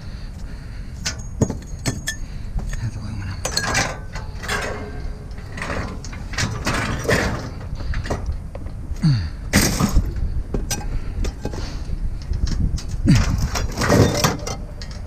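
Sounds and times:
steady low rumble: 0.0s - 15.0s
scrap metal clanking: 3.4s - 8.3s, 13.1s - 15.0s.

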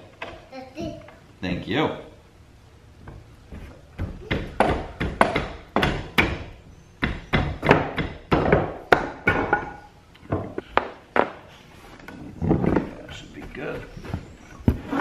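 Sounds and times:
hammer striking wood: 4.0s - 9.8s.

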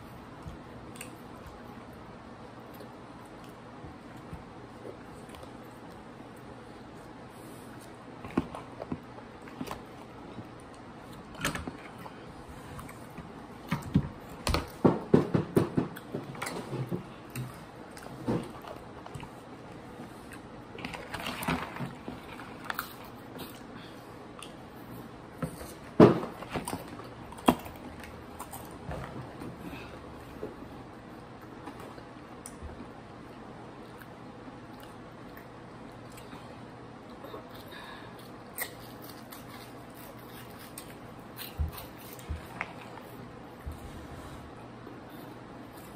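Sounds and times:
crunching and chewing snacks: 15.9s - 29.4s, 33.8s - 43.3s.

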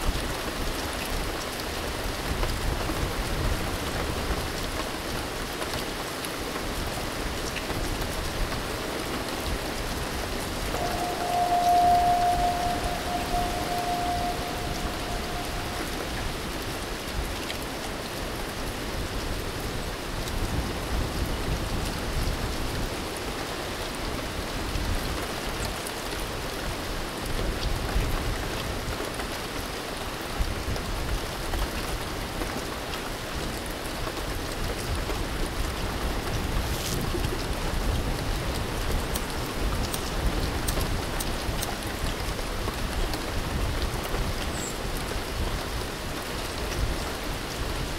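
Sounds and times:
rain falling on water: 0.0s - 47.9s
held tone: 10.7s - 17.0s.

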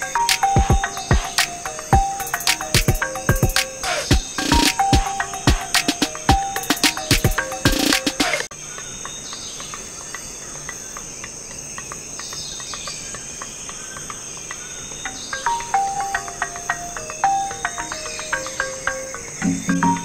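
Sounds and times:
insect chirring: 0.0s - 20.0s
plucked string music: 19.4s - 20.0s.

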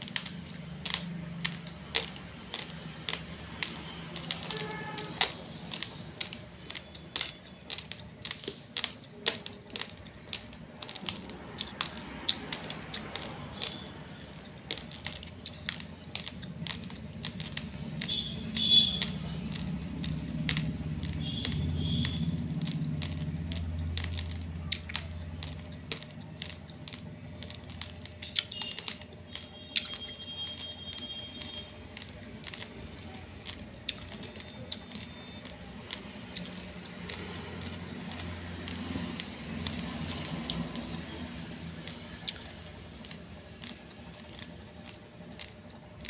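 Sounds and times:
raw rice crunched between teeth: 0.0s - 45.9s.

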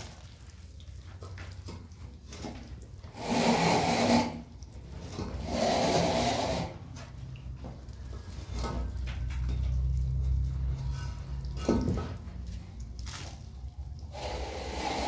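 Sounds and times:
hands mixing powder in bowl: 6.6s - 14.0s.

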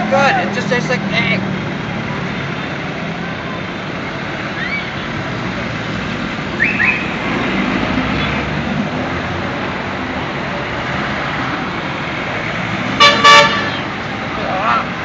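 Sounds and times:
roadside traffic noise: 0.0s - 15.0s
vehicle horn honking: 13.0s - 13.8s.

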